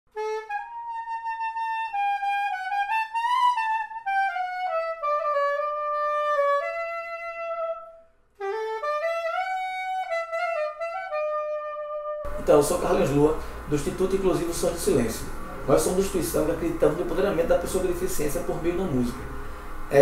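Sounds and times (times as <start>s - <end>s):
soprano saxophone melody: 0.1s - 12.4s.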